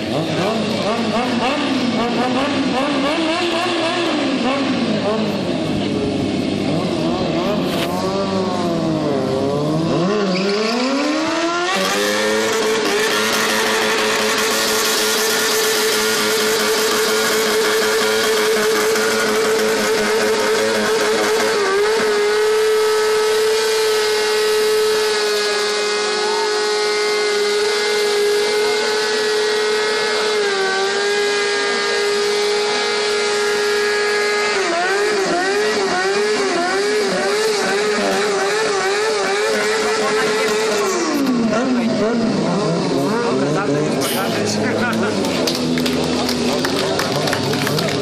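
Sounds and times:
motorcycle engine revving: 0:00.0 - 0:48.0
tyre spinning on asphalt: 0:09.8 - 0:25.6.

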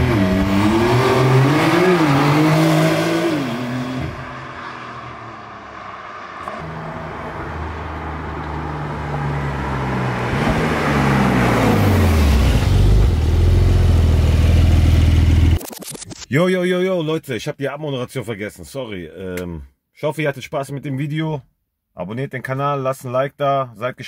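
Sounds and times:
car engine driving by: 0:00.0 - 0:15.6.

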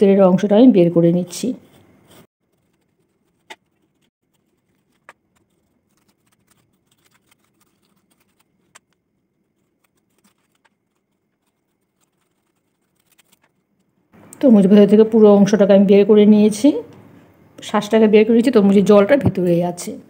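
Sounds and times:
knife scraping watermelon flesh: 0:01.5 - 0:08.9.

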